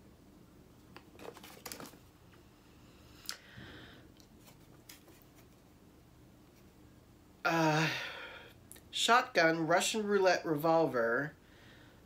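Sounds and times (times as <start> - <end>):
soft rustle: 4.2 - 5.8.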